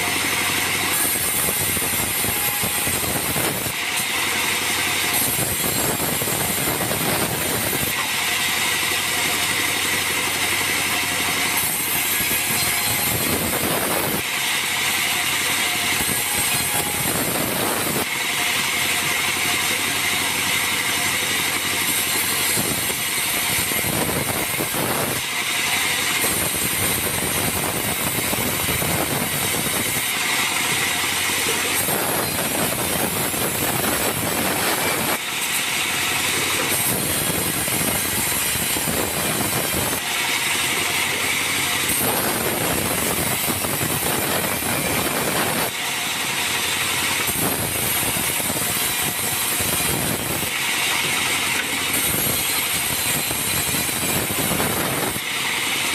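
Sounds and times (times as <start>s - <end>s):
bandsaw mill cutting planks: 0.0s - 55.9s.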